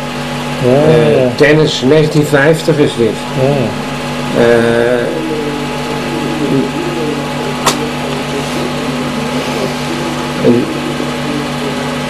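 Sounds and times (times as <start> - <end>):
background hum and hiss: 0.0 - 12.0
faint murmur of voices: 0.6 - 12.0
sharp click: 7.6 - 7.8.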